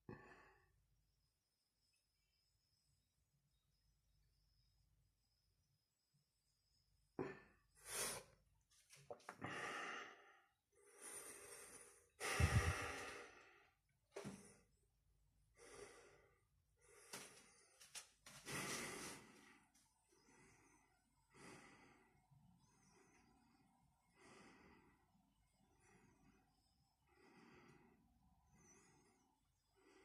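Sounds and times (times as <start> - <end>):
man breathing hard: 9.4 - 14.7, 15.6 - 25.1.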